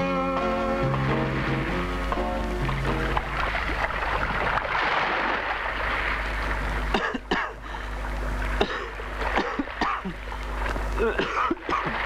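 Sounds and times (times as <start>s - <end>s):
sea water rushing: 0.0s - 12.0s
man coughing: 6.9s - 7.6s, 8.6s - 10.2s, 11.0s - 12.0s.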